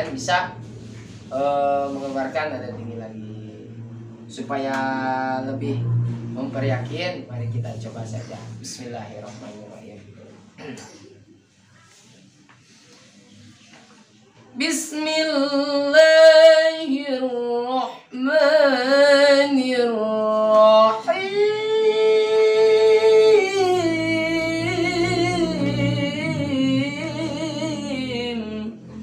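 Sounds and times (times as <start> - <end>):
man singing unaccompanied: 14.6 - 29.0.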